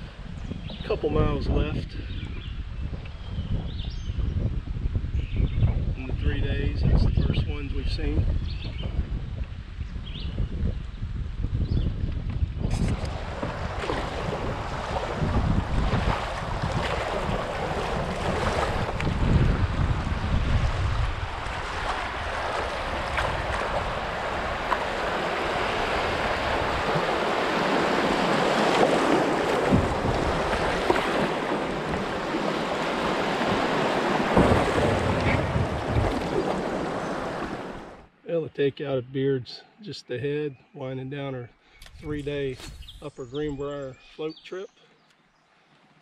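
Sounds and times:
wind buffeting microphone: 0.0 - 38.1
river water rushing and splashing: 13.0 - 38.1.

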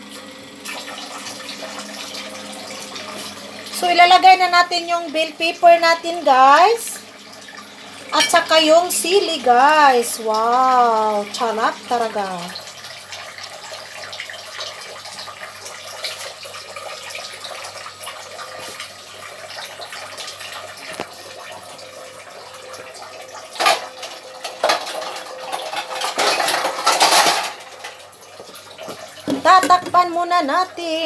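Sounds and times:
metal utensils clattering on pot: 8.1 - 8.5, 23.6 - 28.0.

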